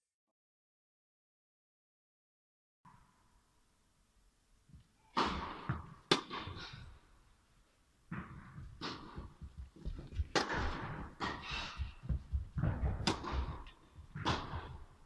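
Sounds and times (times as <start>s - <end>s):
tennis ball hit by racket: 5.1s - 6.8s, 10.2s - 11.9s, 12.6s - 14.9s
tennis ball bouncing: 5.2s - 6.6s, 8.1s - 14.9s.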